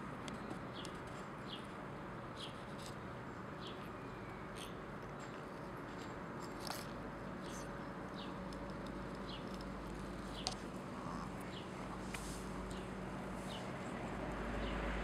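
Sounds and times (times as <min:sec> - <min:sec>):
cat gnawing on a dry twig: 0:03.8 - 0:14.5.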